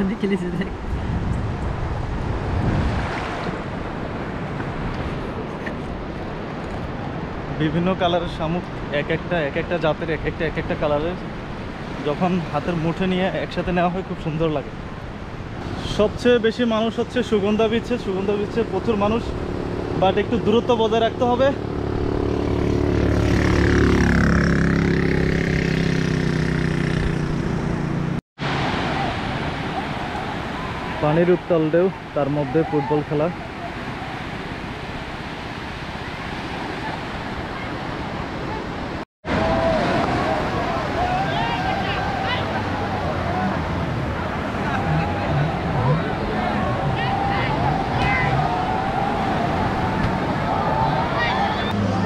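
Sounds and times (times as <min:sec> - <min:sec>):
waves washing onto beach: 0:00.0 - 0:24.0, 0:28.4 - 0:52.0
wind: 0:00.0 - 0:52.0
wind rumbling on microphone: 0:00.6 - 0:07.6, 0:33.3 - 0:52.0
quad bike engine running: 0:21.5 - 0:28.2.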